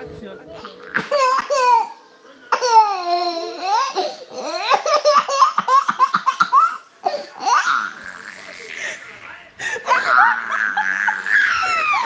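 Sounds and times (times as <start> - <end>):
child laughing: 9.8 - 12.0.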